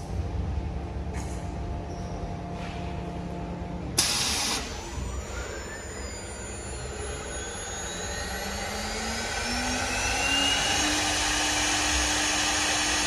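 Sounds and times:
faint rising whine: 2.4s - 13.0s
wood lathe whirring: 5.0s - 13.0s.

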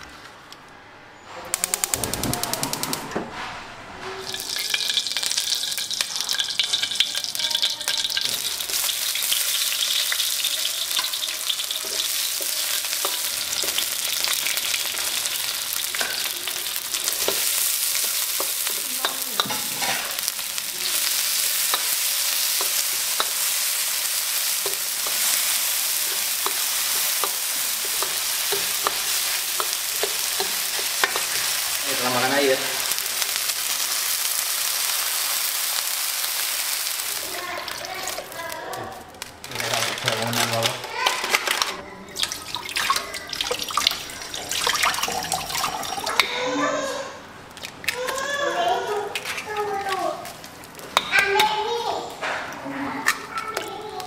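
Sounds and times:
vegetables sizzling in hot oil: 4.2s - 41.1s, 42.3s - 46.6s.

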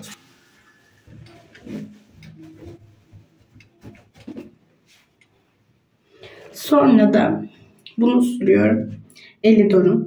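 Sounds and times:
bottles knocking and rustling: 1.1s - 4.6s.

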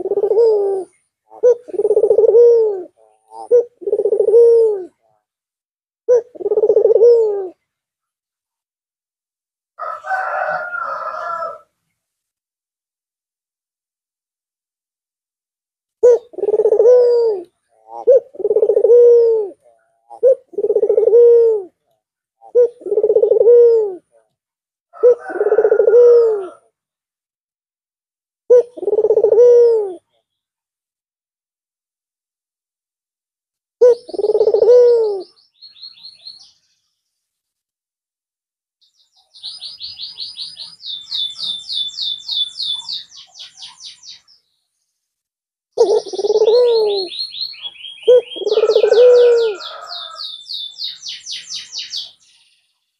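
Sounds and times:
dove cooing: 0.0s - 5.2s, 6.1s - 7.6s, 16.0s - 21.8s, 22.4s - 24.2s, 25.0s - 26.7s, 28.5s - 30.2s, 33.8s - 35.4s, 45.8s - 50.2s
small bird chirping: 33.8s - 37.1s, 38.8s - 45.0s, 45.8s - 52.9s.

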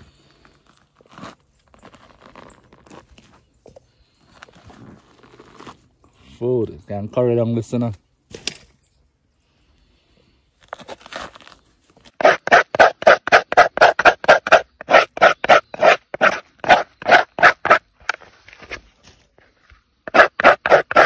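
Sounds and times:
knife scraping gourd shell: 10.7s - 18.2s, 20.1s - 21.0s.

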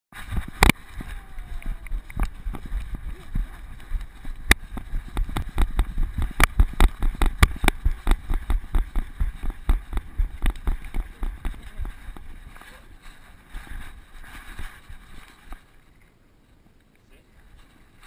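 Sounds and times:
camera jostling knocks and thuds: 2.0s - 12.3s.

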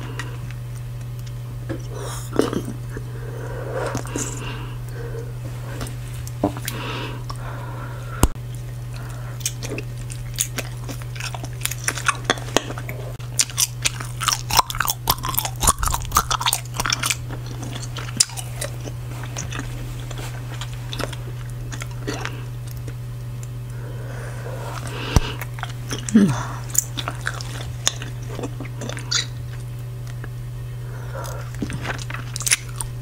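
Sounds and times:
gum chewing wet smacks: 8.2s - 23.8s, 24.7s - 30.3s.

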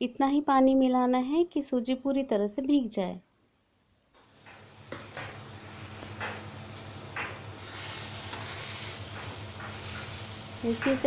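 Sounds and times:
semolina sizzling in a hot pan: 4.4s - 11.0s.

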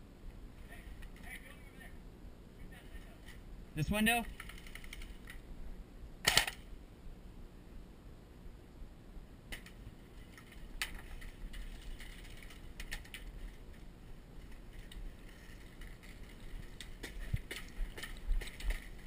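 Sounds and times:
airsoft rifle burst: 6.2s - 6.7s
faint clicks and knocks: 9.5s - 19.0s.

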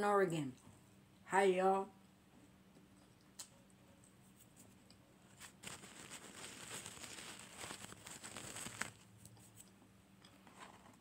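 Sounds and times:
paper packaging rustling: 5.3s - 9.1s.

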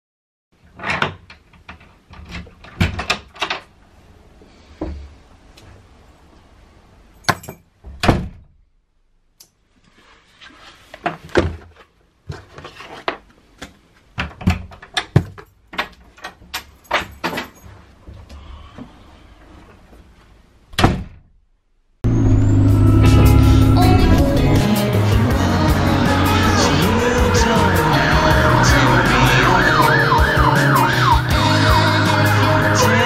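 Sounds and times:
door pulled shut: 20.8s - 21.3s.

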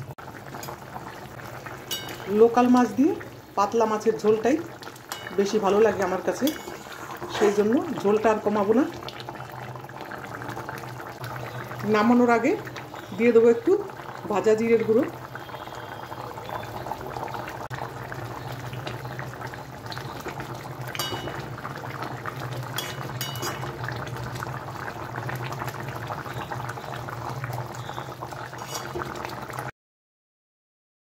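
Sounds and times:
curry bubbling in a pan: 0.0s - 29.7s
metal spatula clicking on pan: 1.9s - 2.4s, 5.1s - 5.6s, 22.8s - 23.7s.

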